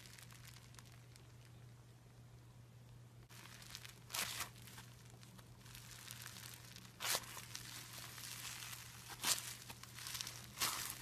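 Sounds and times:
slime crackling and crunching: 0:00.0 - 0:01.6, 0:03.3 - 0:11.0
slime tearing bursts: 0:03.3 - 0:11.0.

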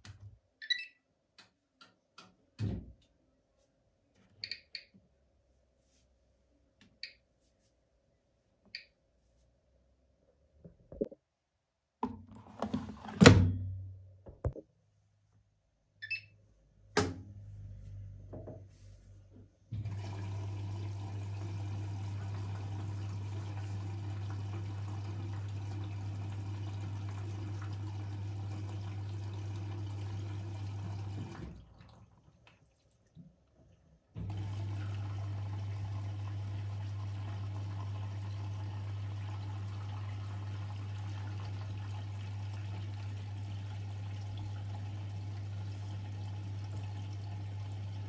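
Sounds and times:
washing machine humming: 0:19.7 - 0:48.0.

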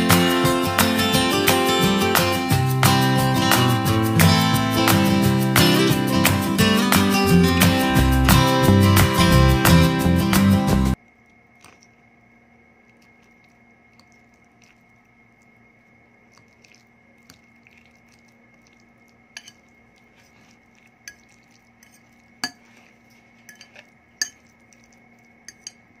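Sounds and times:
fork clinking on ceramic plate: 0:19.4 - 0:19.6, 0:21.8 - 0:22.8, 0:23.4 - 0:24.5, 0:25.5 - 0:25.9.

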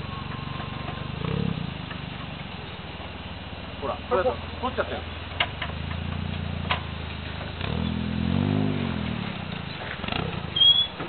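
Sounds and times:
engine idling and revving: 0:00.0 - 0:11.0
brief high squeal: 0:10.6 - 0:11.0.

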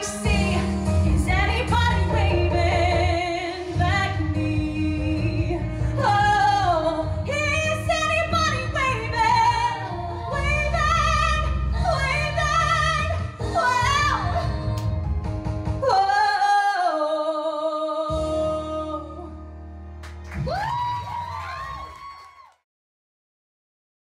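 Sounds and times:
woman singing a ballad: 0:00.0 - 0:15.0, 0:15.8 - 0:19.4
instrumental backing music: 0:00.0 - 0:16.7.

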